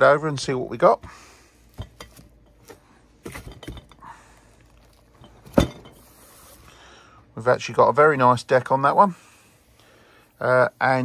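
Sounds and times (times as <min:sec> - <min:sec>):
light metal knocks and clinks: 0:01.8 - 0:02.7, 0:03.3 - 0:04.0, 0:05.2 - 0:06.0
heavy metal thunk: 0:05.4 - 0:06.0.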